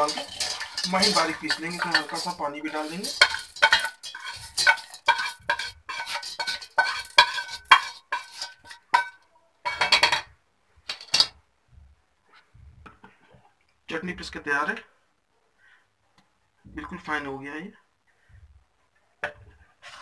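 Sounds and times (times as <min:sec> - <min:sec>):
metallic scrapes and clinks: 0:00.0 - 0:10.3, 0:10.9 - 0:11.3.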